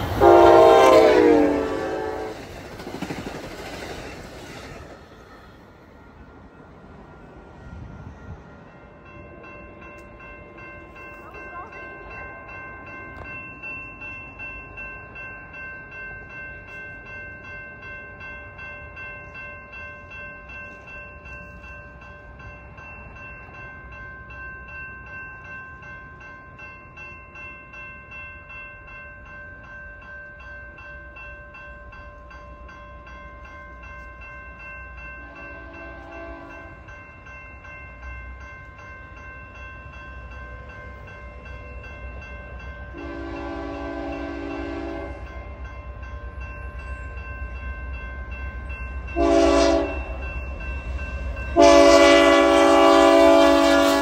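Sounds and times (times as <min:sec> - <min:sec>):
train horn: 0:00.0 - 0:02.5, 0:35.2 - 0:36.7, 0:42.9 - 0:45.3, 0:49.2 - 0:50.2, 0:51.6 - 0:54.0
railroad crossing bell ringing: 0:00.0 - 0:54.0.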